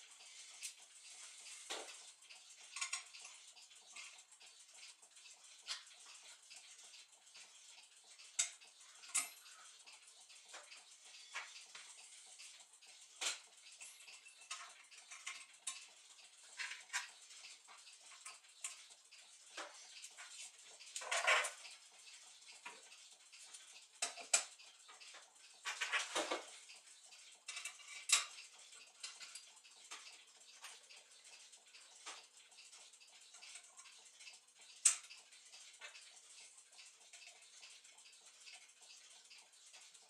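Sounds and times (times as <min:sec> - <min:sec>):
brass clock parts clinking: 0:00.2 - 0:04.2, 0:13.1 - 0:15.9, 0:16.5 - 0:18.8, 0:19.5 - 0:21.7, 0:27.4 - 0:30.0.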